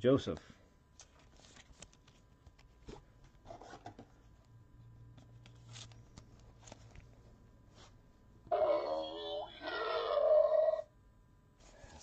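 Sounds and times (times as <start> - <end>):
faint low hum: 0.0 - 12.0
cards rustling: 1.0 - 3.8, 5.4 - 7.1.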